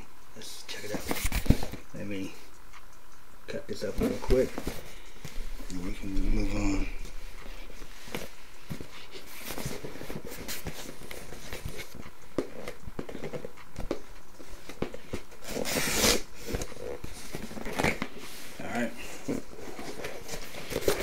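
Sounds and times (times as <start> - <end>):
cardboard tearing: 15.4 - 18.1.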